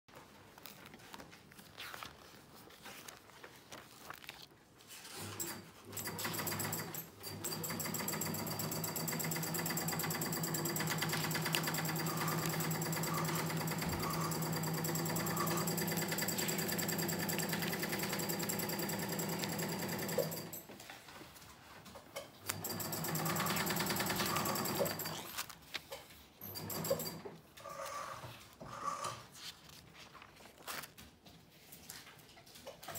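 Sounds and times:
sewing machine running: 5.1 - 20.7, 22.5 - 25.5, 26.4 - 27.3.

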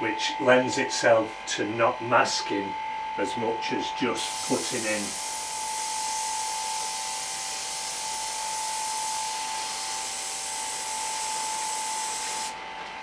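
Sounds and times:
steady high tone: 0.0 - 12.3
airbrush spraying hiss: 4.2 - 8.0, 8.7 - 12.5.

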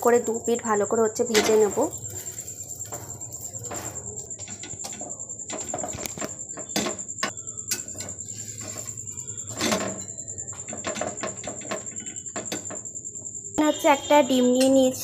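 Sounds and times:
metal spatula scraping a pan: 1.2 - 6.9, 7.7 - 12.3.

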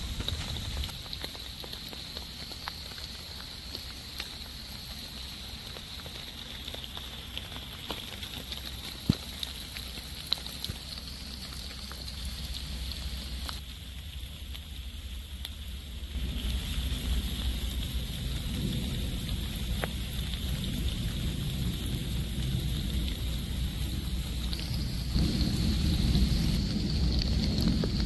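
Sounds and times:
rain on foliage: 0.0 - 28.0
low rumble: 11.2 - 28.0.

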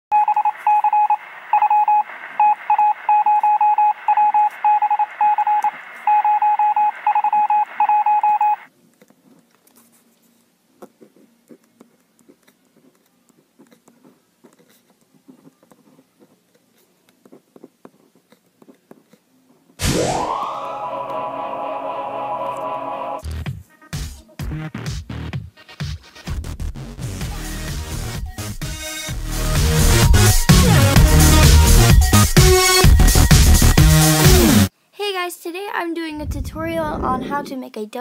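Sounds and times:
electronic beeping: 0.1 - 8.7
electronic music: 19.8 - 23.4, 27.2 - 34.7.

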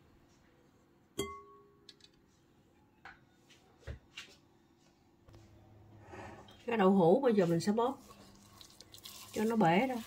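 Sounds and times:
glass bowl ringing when tapped: 1.2 - 1.8.

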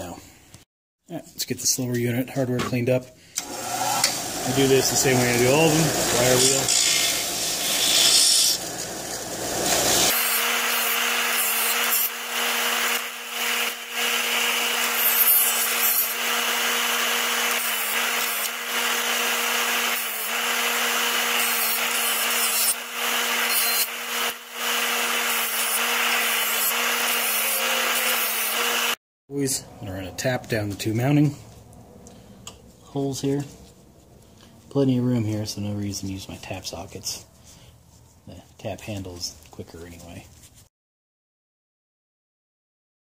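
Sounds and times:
bench grinder motor hum: 3.4 - 29.0
wire wheel scratching steel screw: 6.3 - 8.6.

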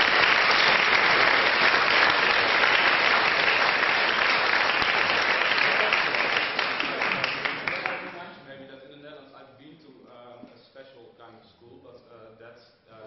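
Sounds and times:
large audience applauding: 0.0 - 8.3.

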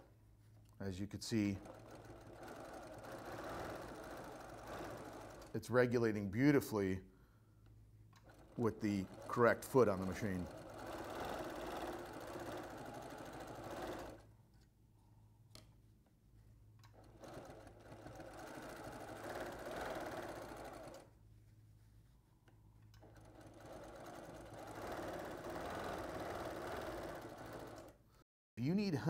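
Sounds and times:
sewing machine stitching: 1.3 - 6.6, 8.2 - 14.3, 16.8 - 21.1, 23.0 - 28.1.

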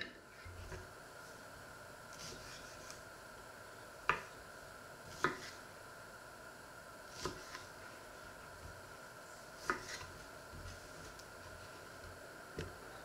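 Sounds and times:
knife slicing plums: 2.1 - 3.0, 5.1 - 5.6, 7.1 - 7.7, 9.6 - 11.2.

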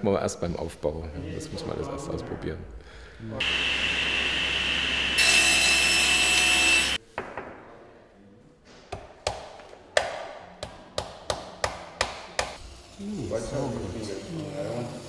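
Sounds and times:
table saw whining: 3.4 - 7.0.

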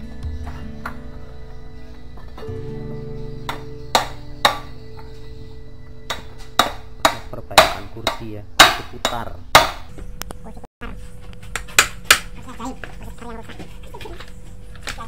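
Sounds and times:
hammer striking metal plate: 3.4 - 5.2, 6.0 - 9.9.

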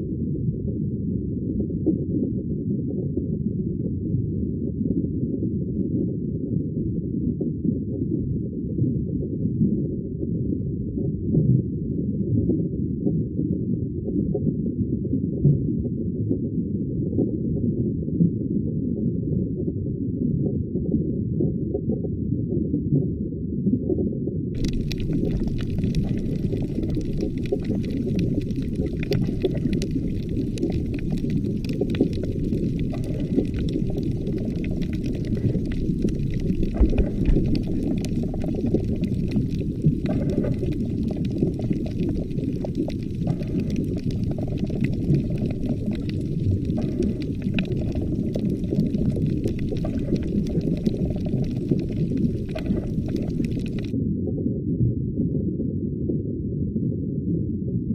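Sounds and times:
underwater rumble and gurgle: 0.0 - 57.9
faint crackle of clicks: 24.6 - 54.0.

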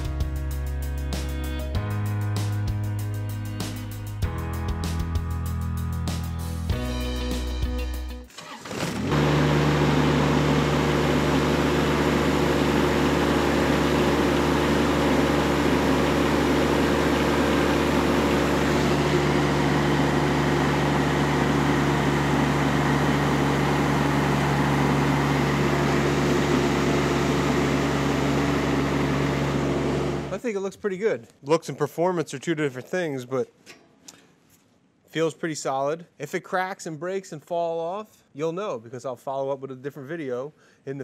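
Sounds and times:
tractor engine running: 8.3 - 30.4.

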